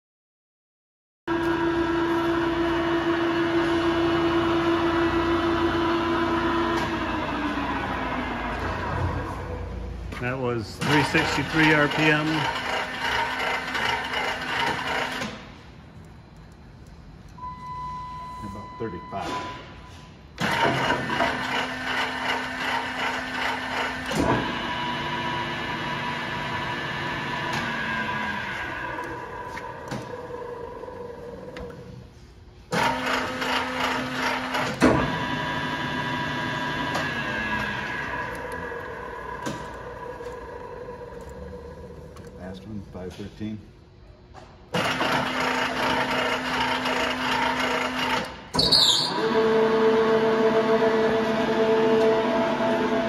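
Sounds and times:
lathe running hum: 1.3 - 9.8, 10.4 - 15.4, 20.4 - 31.7, 32.8 - 42.3, 44.8 - 48.5, 49.1 - 53.0
lathe gearing humming: 10.3 - 15.4.

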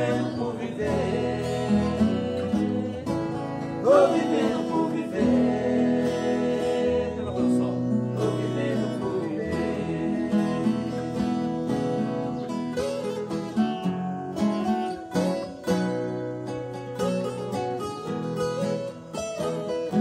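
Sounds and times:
two men singing: 0.0 - 11.8
acoustic guitars strummed and picked: 0.0 - 20.0.

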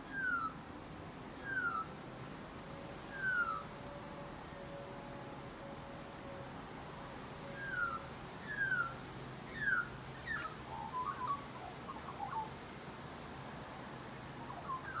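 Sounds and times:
magpie singing: 0.1 - 0.6, 1.4 - 1.9, 3.2 - 3.6, 7.6 - 8.9, 9.5 - 12.5, 14.5 - 15.0.

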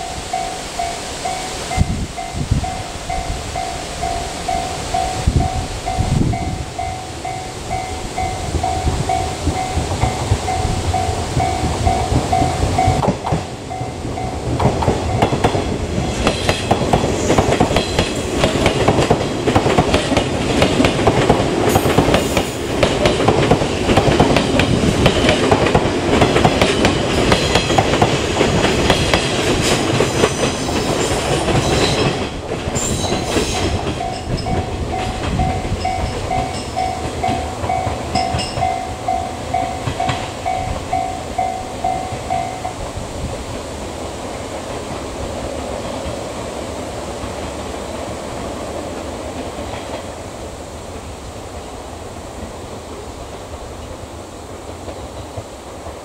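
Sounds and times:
level crossing warning bell: 0.0 - 16.3, 32.8 - 42.9
electric train passing: 0.0 - 56.0.

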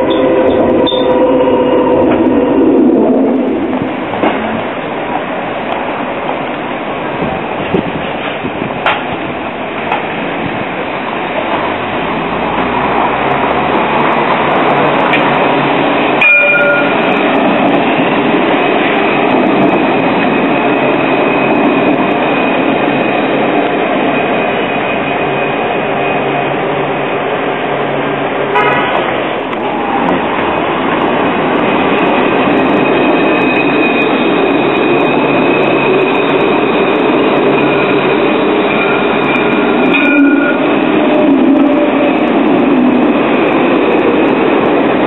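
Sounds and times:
short pitched horn tone: 0.0 - 2.6, 28.5 - 29.0
steady high whine: 0.0 - 6.1, 14.6 - 45.0
tram passing: 0.0 - 45.0.

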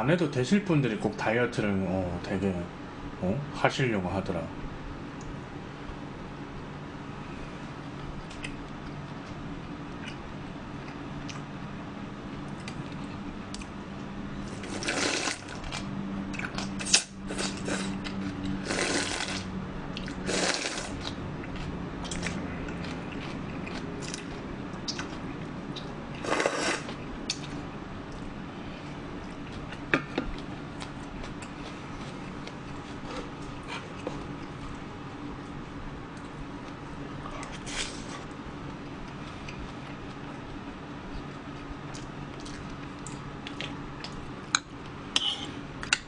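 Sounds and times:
slurping noodles: 14.5 - 15.6, 16.8 - 18.0, 18.6 - 19.5, 20.2 - 21.0, 26.2 - 27.0
chewing: 41.2 - 44.7.

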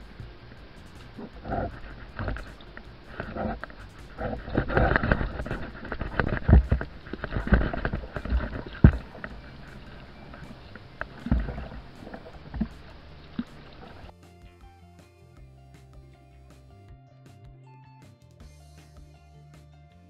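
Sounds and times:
low thumps: 0.0 - 14.1
music: 0.0 - 20.0
oars splashing in water: 1.0 - 14.1.

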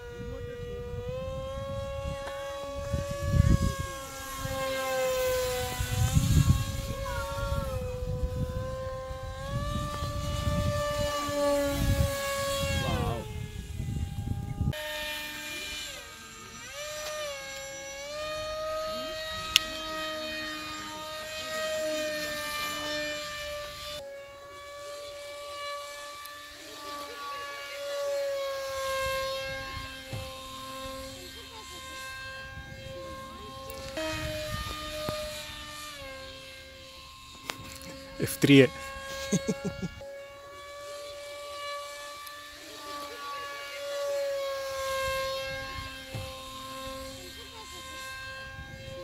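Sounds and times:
wind on microphone: 0.0 - 24.0, 31.9 - 40.0, 44.1 - 47.3, 48.0 - 49.0
electric motor and propeller whine: 0.0 - 49.0.

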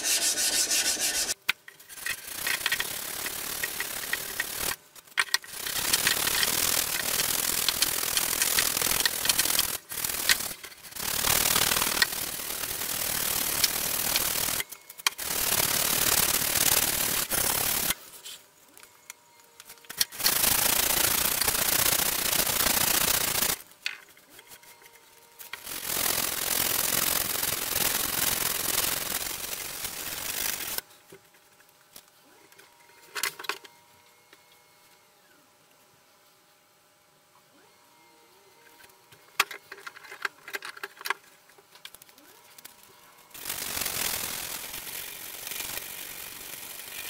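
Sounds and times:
sandpaper rubbing on knife blade: 0.0 - 1.4.

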